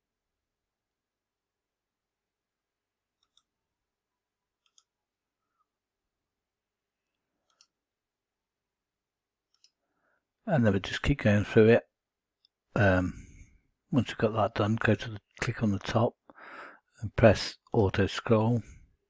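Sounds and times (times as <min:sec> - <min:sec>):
computer mouse clicks: 0:03.2 - 0:03.5, 0:04.6 - 0:05.0, 0:07.4 - 0:07.8, 0:09.5 - 0:09.8.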